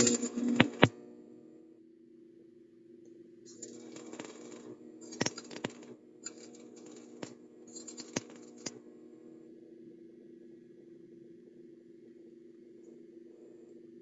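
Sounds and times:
welding arc crackling and popping: 0:00.0 - 0:01.0, 0:03.5 - 0:08.8.

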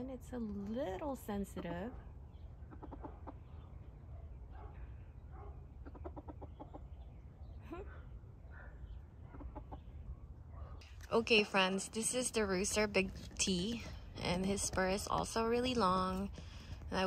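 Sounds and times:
chicken clucking: 0:02.7 - 0:03.5, 0:05.8 - 0:07.0.

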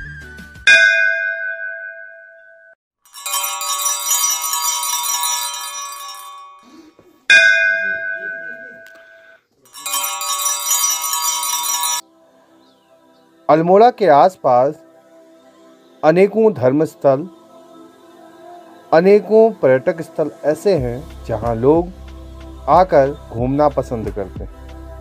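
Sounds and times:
temple bell ringing: 0:00.7 - 0:06.6, 0:07.3 - 0:12.0
small bells jangling: 0:03.0 - 0:06.7, 0:07.4 - 0:12.0.

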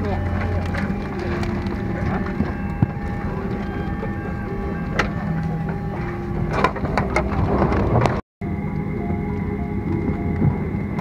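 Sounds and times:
passengers' voices: 0:00.0 - 0:07.6
airliner cabin hum: 0:00.0 - 0:11.0.

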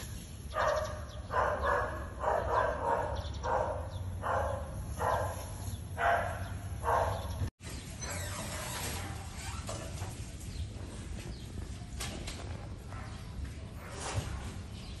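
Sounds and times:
animal barking: 0:00.5 - 0:07.4.

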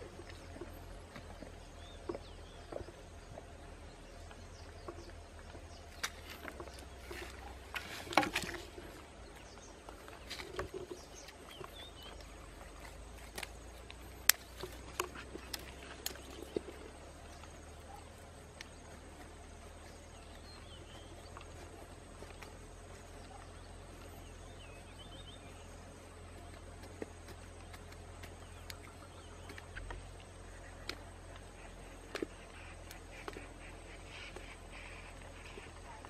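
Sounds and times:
stick scraping dry soil: 0:05.8 - 0:24.4.

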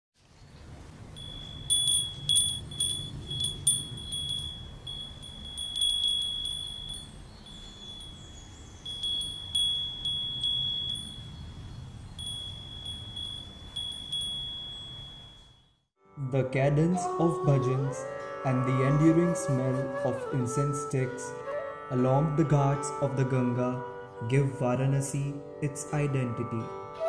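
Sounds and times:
steady low rumble: 0:00.6 - 0:07.4
small brass bells ringing: 0:01.2 - 0:15.8.

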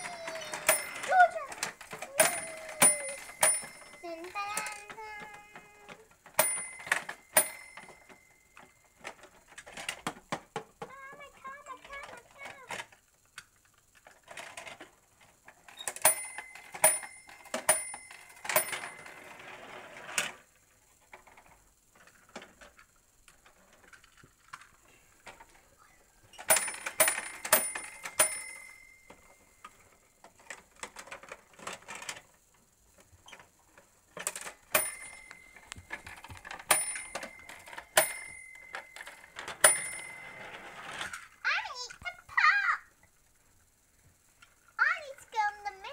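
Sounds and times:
plastic toy clicks and clatter: 0:00.0 - 0:20.4, 0:26.4 - 0:32.4, 0:33.0 - 0:42.5
small metal bell dinging: 0:02.2 - 0:04.3, 0:06.4 - 0:08.4.

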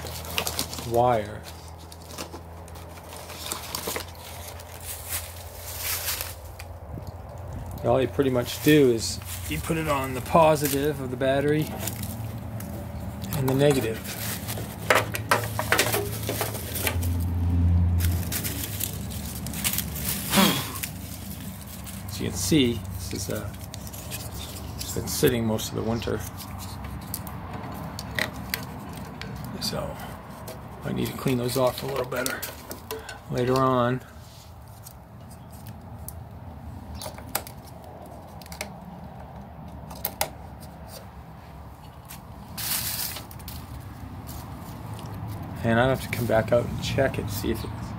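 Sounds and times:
handling clicks and knocks: 0:09.6 - 0:17.2, 0:20.8 - 0:33.9, 0:36.9 - 0:41.1.

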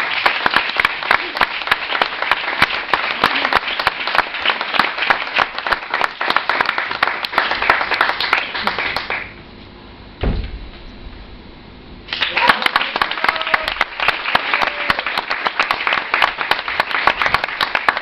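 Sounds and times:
audience applauding: 0:00.0 - 0:09.4, 0:12.1 - 0:18.0
low thump: 0:10.2 - 0:11.2.

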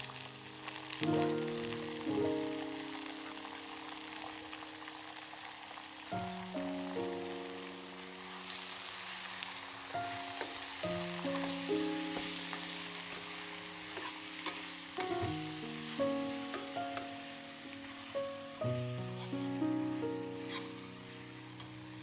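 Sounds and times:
background music with held chords: 0:00.0 - 0:04.6, 0:06.1 - 0:08.8, 0:09.7 - 0:22.0
food sizzling in hot oil: 0:00.0 - 0:22.0
utensil stirring in pan: 0:08.4 - 0:21.8.

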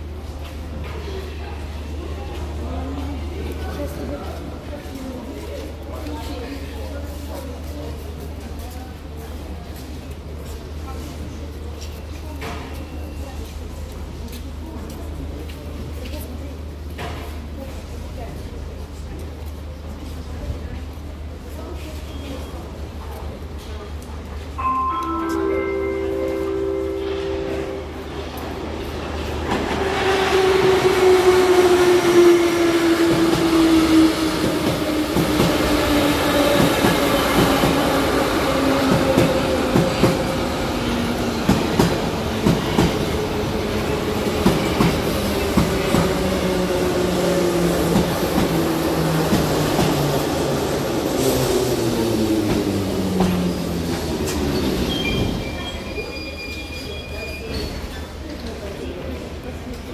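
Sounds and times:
train braking: 0:53.2 - 0:58.2.

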